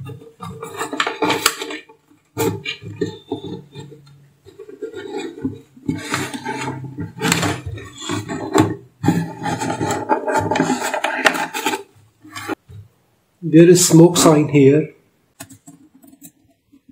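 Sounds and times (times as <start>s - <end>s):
scraping and rubbing: 0.0s - 12.7s.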